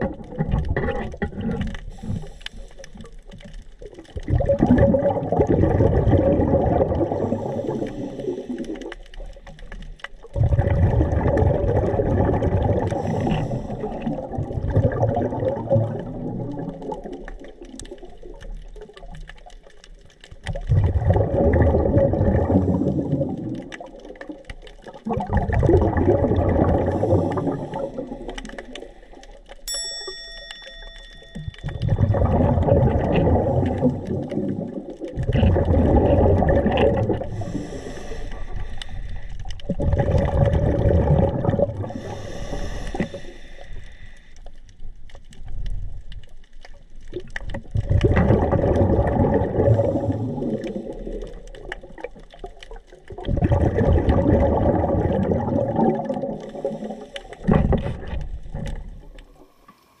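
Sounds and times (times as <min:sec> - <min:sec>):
exhaled bubbles gurgling: 0:00.0 - 0:29.7, 0:30.6 - 1:00.0
diver inhaling through regulator: 0:01.8 - 0:03.0, 0:07.2 - 0:08.7, 0:12.8 - 0:14.3, 0:26.8 - 0:28.6, 0:37.2 - 0:39.5, 0:41.8 - 0:44.5, 0:49.8 - 0:51.1, 0:56.4 - 0:57.9.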